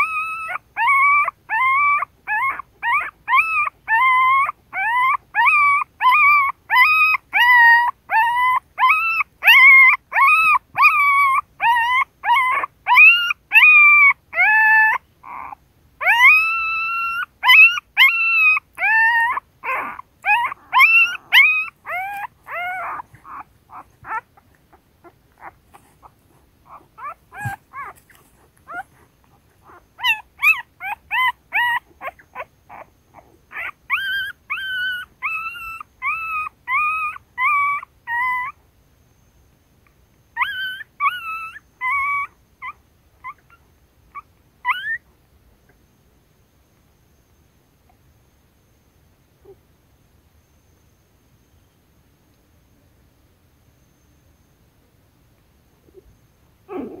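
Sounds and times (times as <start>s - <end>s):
newborn puppies whining: 0.0s - 38.6s, 40.4s - 45.1s, 56.7s - 57.0s.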